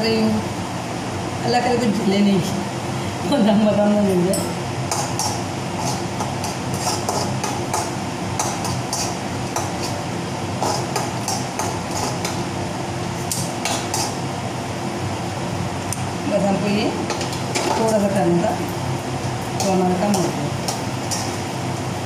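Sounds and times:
steady low hum: 0:00.0 - 0:22.0
metal spoon scraping a pan: 0:04.9 - 0:10.0, 0:10.6 - 0:12.4, 0:13.6 - 0:14.2.

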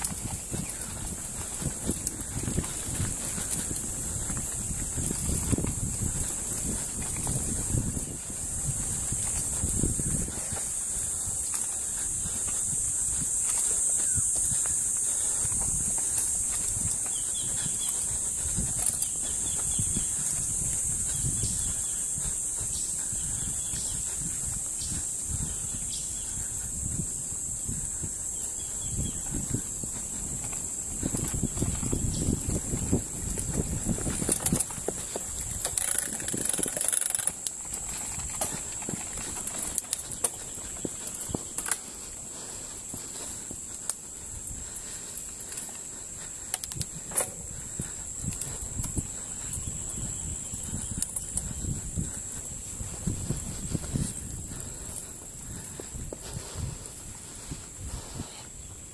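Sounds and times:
bike knocking and rattling over bumps: 0:00.0 - 0:56.7
wind: 0:00.0 - 0:58.9
bike chain and frame clattering: 0:29.3 - 0:42.2.

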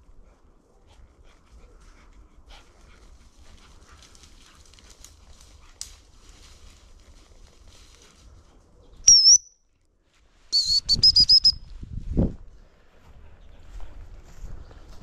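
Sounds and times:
dog whistle blasts: 0:09.1 - 0:09.6, 0:10.5 - 0:11.6.

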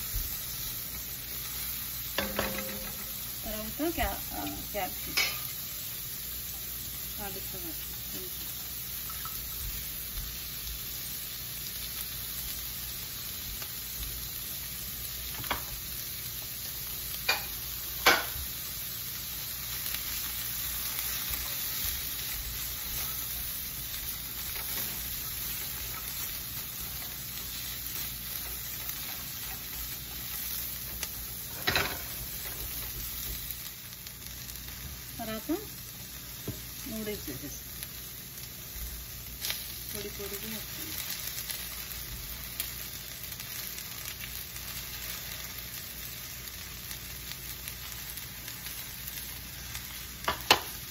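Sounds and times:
vegetables sizzling in a wok: 0:00.0 - 0:50.9
knocks against a pan: 0:02.2 - 0:03.0.

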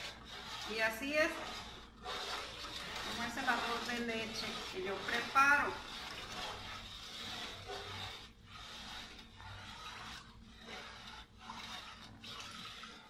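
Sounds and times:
wooden spoon scraping pot bottom: 0:00.0 - 0:13.0.

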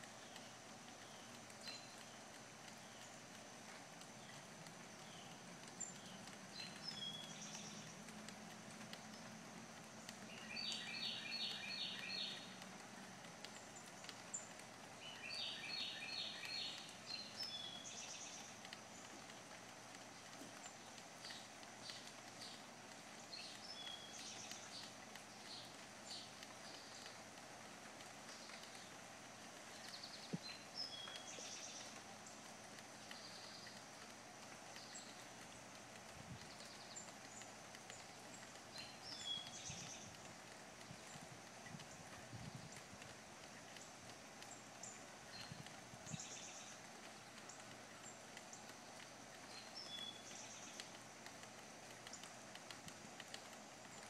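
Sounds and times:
background hiss: 0:00.0 - 0:54.0
light ticks: 0:00.0 - 0:54.0
bird chirps: 0:10.2 - 0:12.6, 0:14.0 - 0:19.3, 0:29.7 - 0:32.0, 0:36.5 - 0:40.2.

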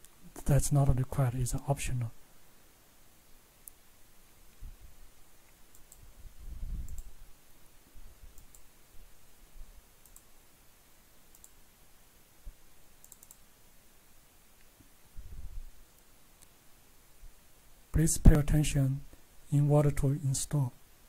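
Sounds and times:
computer mouse button clicking: 0:13.0 - 0:13.4.

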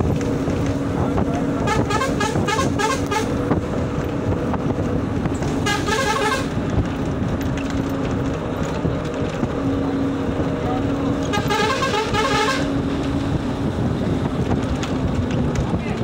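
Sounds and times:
vehicle rumble from inside: 0:00.0 - 0:16.0
car horn short toots: 0:01.6 - 0:03.4, 0:05.6 - 0:06.6, 0:11.3 - 0:12.8.

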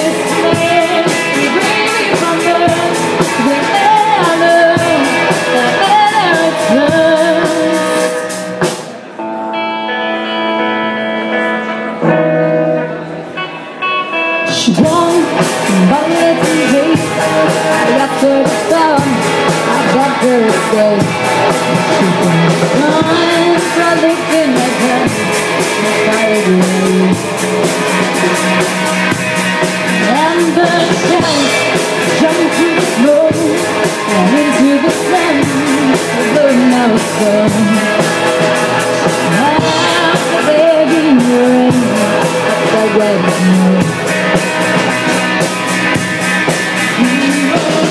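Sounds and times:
woman singing: 0:00.0 - 0:08.2, 0:14.5 - 0:27.5, 0:29.8 - 0:38.1, 0:39.0 - 0:44.1, 0:46.8 - 0:47.9
rock band playing: 0:00.0 - 0:47.9.

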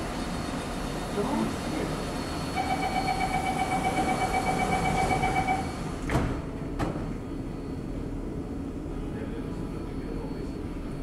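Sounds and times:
stopped train humming: 0:00.0 - 0:11.0
high warning tone: 0:02.2 - 0:05.9
sliding doors knocking shut: 0:04.8 - 0:07.2.

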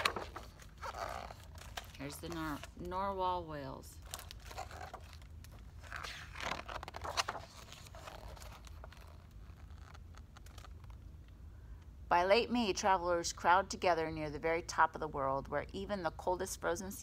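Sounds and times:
paper page rustling: 0:00.0 - 0:02.8, 0:04.0 - 0:11.0.

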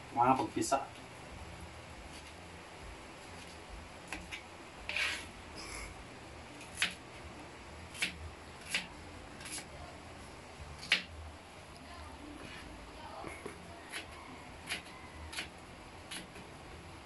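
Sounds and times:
knife chopping on plastic board: 0:06.7 - 0:07.0, 0:07.9 - 0:09.6, 0:13.9 - 0:15.5.

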